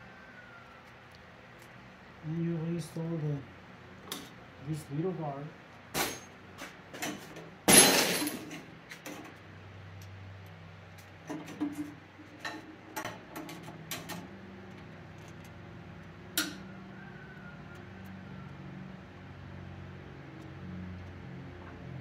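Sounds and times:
loud metal clatter: 7.1s - 8.7s
metal tool clanks and taps: 16.4s - 16.6s.

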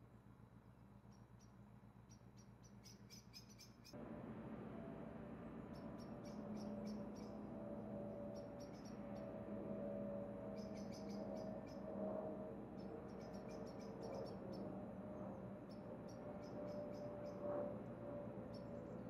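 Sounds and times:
low hum with drone: 0.0s - 19.0s
small bird chirping: 2.1s - 4.0s, 5.7s - 7.4s, 8.3s - 9.2s, 10.5s - 11.8s, 12.8s - 14.6s.

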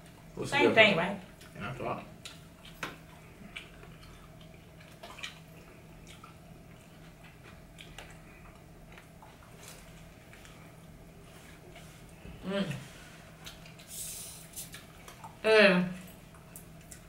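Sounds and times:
faint low hum: 0.0s - 17.0s
wet chewing and lip smacks: 2.2s - 10.7s, 13.4s - 15.4s, 16.0s - 17.0s.

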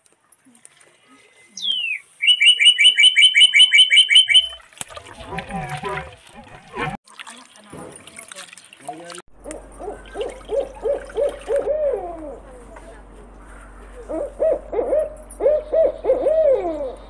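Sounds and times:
bird hooting: 1.6s - 4.6s, 9.8s - 12.7s, 13.4s - 17.0s.

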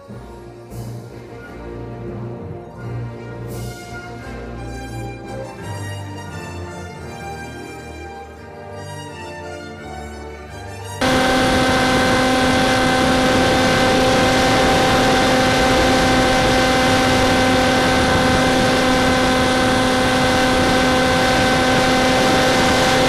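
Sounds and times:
model plane motor humming: 11.0s - 23.0s
wind rushing on microphone: 11.0s - 23.0s.

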